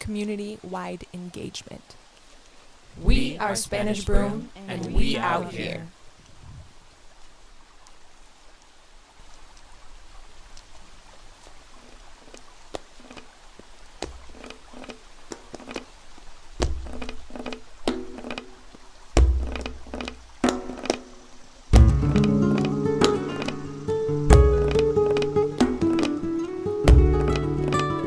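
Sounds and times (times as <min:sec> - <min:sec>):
heavy deep thuds: 0:16.6 - 0:17.3, 0:19.2 - 0:20.7
knocks and thuds: 0:16.6 - 0:18.4, 0:19.2 - 0:21.1, 0:21.7 - 0:23.5, 0:24.3 - 0:26.2, 0:26.9 - 0:27.5.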